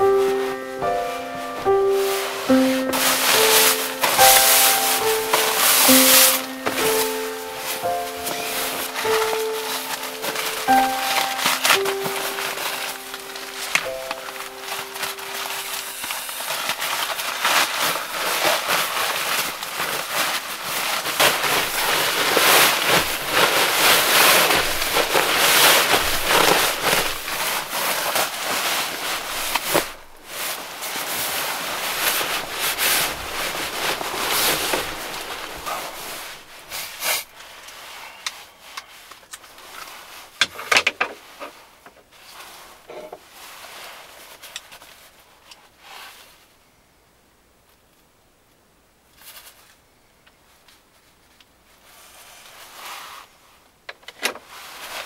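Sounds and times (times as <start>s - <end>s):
sleeping bag fabric rustling: 0.0s - 40.4s, 54.4s - 55.0s.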